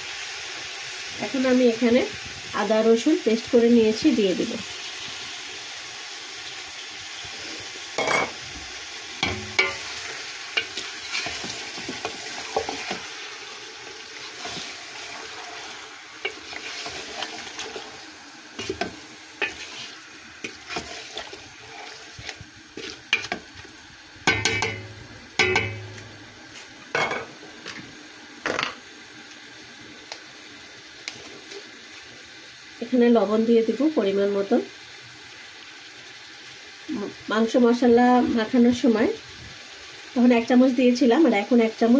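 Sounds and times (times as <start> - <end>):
meat sizzling: 0.0 - 41.9
spatula knocking metal pot: 9.2 - 9.8, 24.3 - 26.1.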